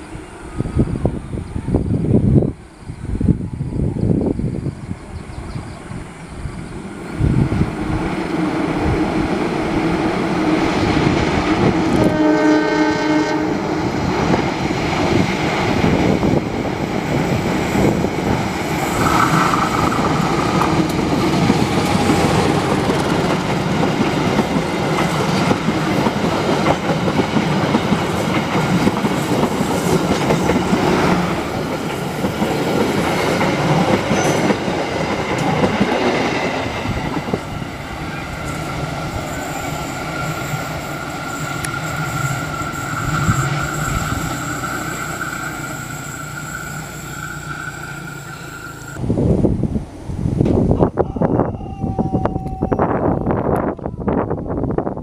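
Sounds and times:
train horn: 0:11.6 - 0:14.0
train wheels clattering on rails: 0:13.9 - 0:49.0
short high squeal: 0:39.2 - 0:49.0.

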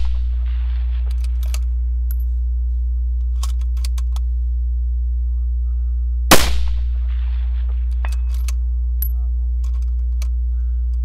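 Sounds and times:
rifle shot: 0:00.0 - 0:01.3, 0:06.3 - 0:08.1
steady low hum: 0:00.0 - 0:11.0.

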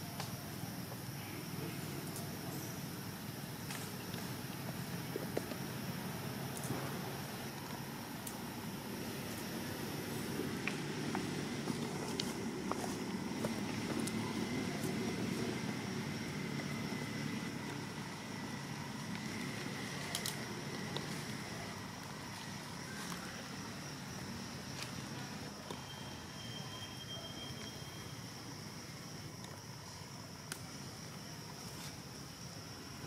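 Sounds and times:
high insect drone: 0:00.0 - 0:33.0
low motor-like rumble: 0:03.0 - 0:24.4.

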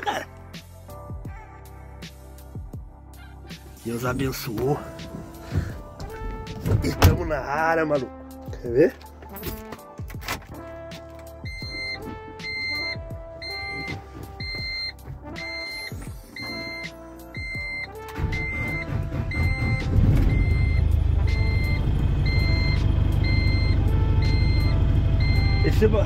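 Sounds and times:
warning buzzer beeping: 0:11.4 - 0:25.8
diesel engine starting and idling: 0:17.6 - 0:26.0.

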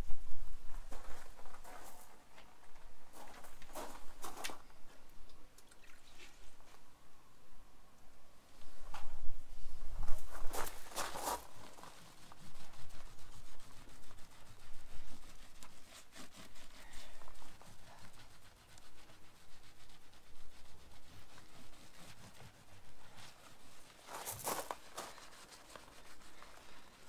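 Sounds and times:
sponge scrubbing van panel: 0:10.8 - 0:27.0.

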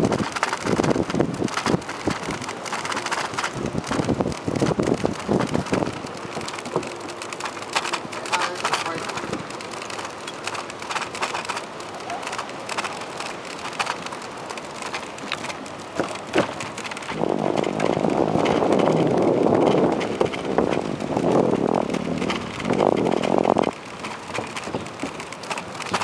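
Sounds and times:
bicycle on wooden boardwalk: 0:00.0 - 0:26.0
rattling clicks of wheels: 0:00.0 - 0:26.0
steady rushing noise: 0:00.0 - 0:26.0.

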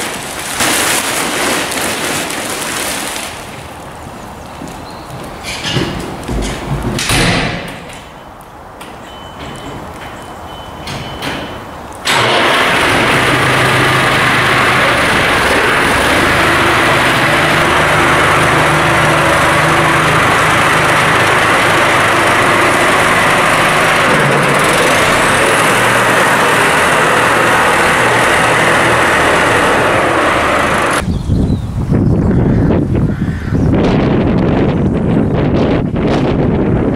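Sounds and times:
tractor diesel engine running: 0:10.5 - 0:31.0.

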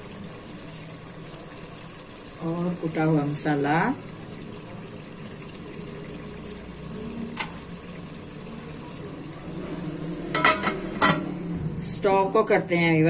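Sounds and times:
food sizzling in a pot: 0:00.0 - 0:13.0
metal lid clanking on pot: 0:10.3 - 0:11.3.

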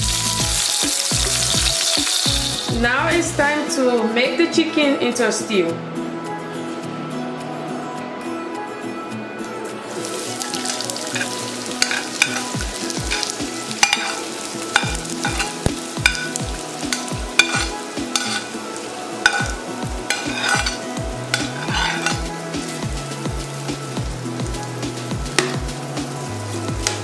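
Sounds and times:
onion sizzling in hot oil: 0:00.0 - 0:03.2, 0:09.9 - 0:27.0
metal spoon scraping plate: 0:11.1 - 0:18.6, 0:19.2 - 0:22.3.

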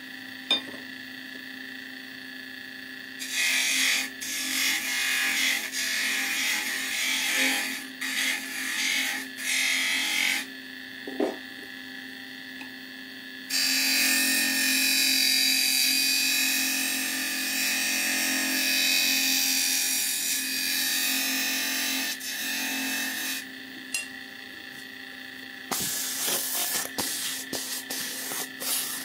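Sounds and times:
turning tool cutting wood: 0:03.2 - 0:10.5, 0:13.5 - 0:23.5, 0:25.7 - 0:29.0
wood lathe humming: 0:25.7 - 0:29.0.

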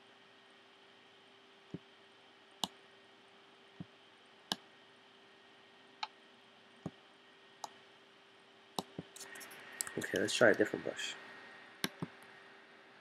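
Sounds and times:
faint steady hum: 0:00.0 - 0:13.0
mouse button clicks: 0:11.8 - 0:12.2.

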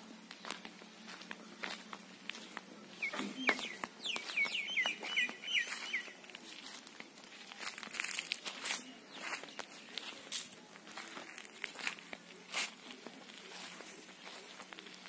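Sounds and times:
footsteps on gravel: 0:00.0 - 0:15.0
bird chirping: 0:00.3 - 0:06.8.

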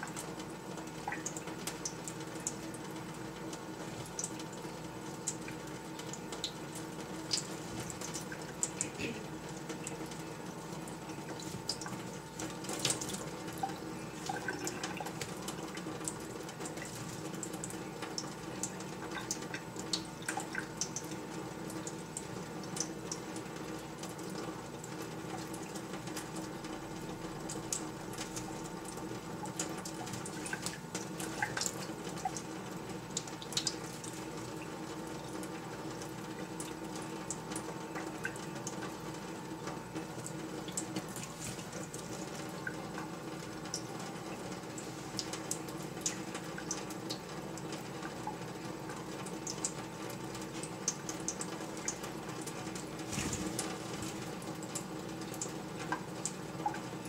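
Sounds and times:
water running from faucet: 0:00.0 - 0:57.0
bird flapping wet wings: 0:41.1 - 0:42.0, 0:53.0 - 0:54.4.

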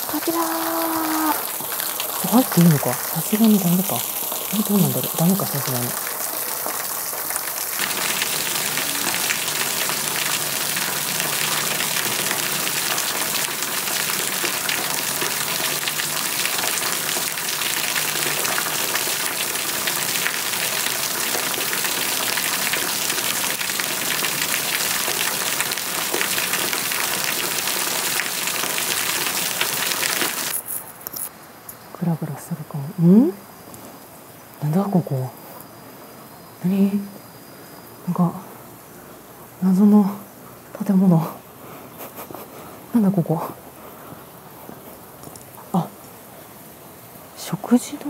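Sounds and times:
waterfall rushing: 0:00.0 - 0:30.6.

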